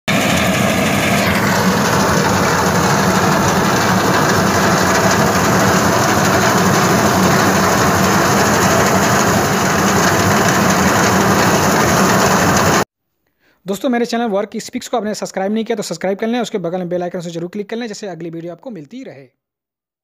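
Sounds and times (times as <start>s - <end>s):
reaper cutting wheat: 0.1s - 12.8s
tractor diesel engine running: 0.1s - 12.8s.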